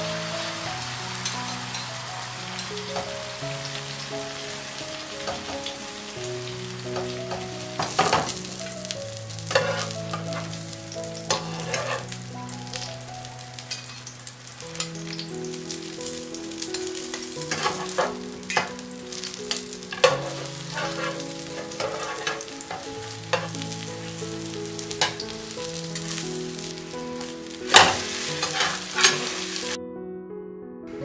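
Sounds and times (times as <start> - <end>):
omelette sizzling in a frying pan: 0.0 - 29.8
metal spatula scraping a pan: 9.4 - 10.6, 11.2 - 12.2, 17.1 - 18.8, 19.5 - 24.2, 24.9 - 25.3, 27.2 - 29.7.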